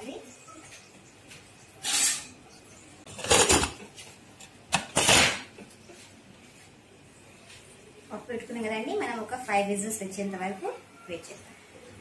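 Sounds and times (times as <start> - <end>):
metal lid clattering and scraping: 1.8 - 2.4, 3.1 - 3.8, 4.8 - 5.5.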